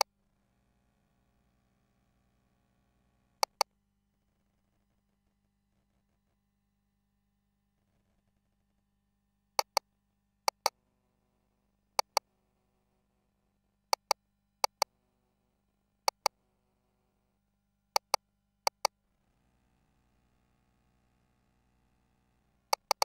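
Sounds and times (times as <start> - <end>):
ultrasound machine control clicks: 3.4 - 3.6, 18.0 - 18.9, 22.7 - 23.0.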